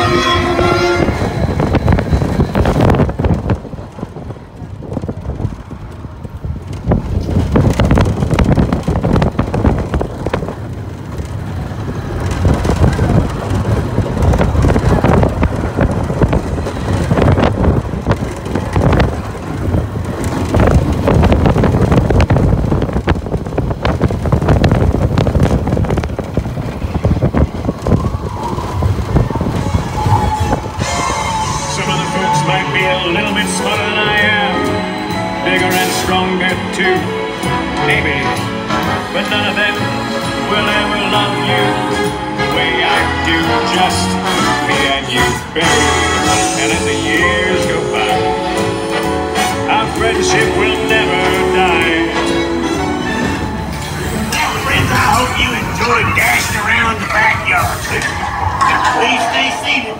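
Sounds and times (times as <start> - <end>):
wind buffeting microphone: 0.0 - 35.4
roller coaster wheels clattering: 0.0 - 59.9.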